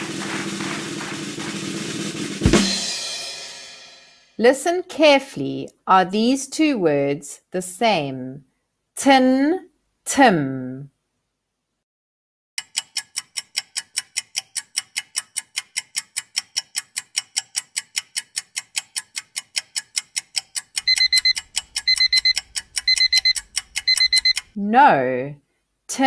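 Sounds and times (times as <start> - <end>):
clock ticking: 12.6 - 24.6
alarm clock beeping: 20.8 - 24.6.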